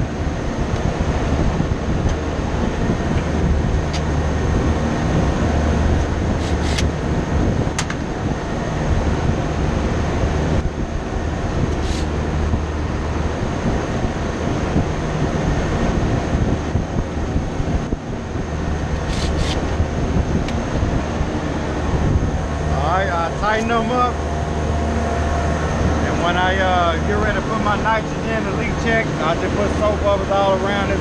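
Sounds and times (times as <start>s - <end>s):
air-conditioning machinery hum: 0.0s - 31.0s
sharp metallic clicks: 6.4s - 6.9s.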